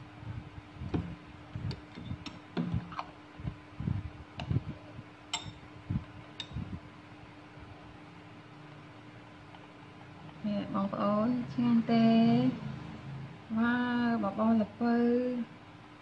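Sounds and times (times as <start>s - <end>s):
metal spoon clinking glass bowl: 5.3s - 5.6s.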